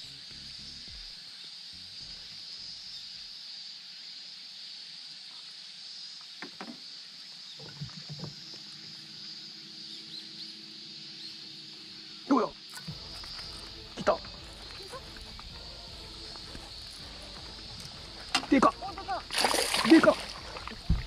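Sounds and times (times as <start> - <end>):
high insect drone: 0.0 - 21.0
water splashes: 18.0 - 21.0.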